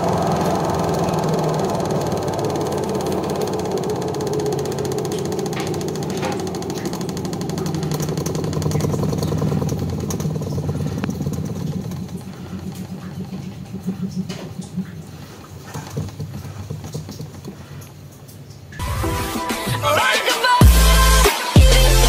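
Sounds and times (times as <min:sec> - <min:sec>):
spin-dryer motor humming: 0:00.0 - 0:22.0.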